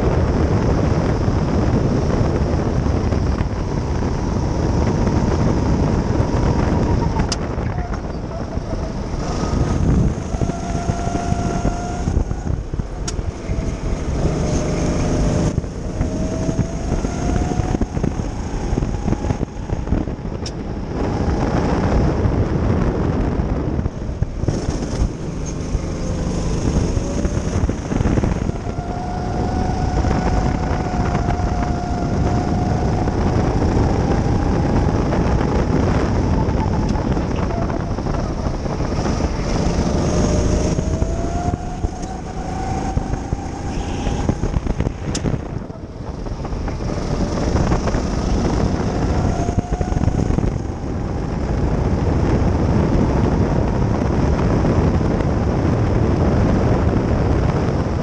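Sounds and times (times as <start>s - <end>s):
go-kart engine revving: 0.0s - 22.2s, 23.6s - 56.5s
heavy low rumble: 0.0s - 58.0s.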